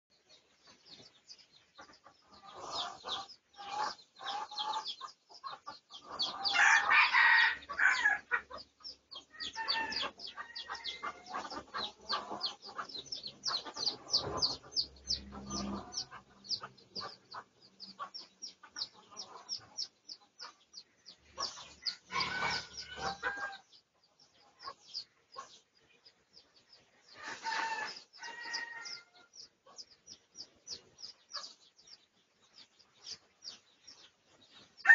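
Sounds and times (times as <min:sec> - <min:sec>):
rooster crowing: 0:06.5 - 0:08.2, 0:09.5 - 0:11.3, 0:22.1 - 0:23.6, 0:27.2 - 0:29.3.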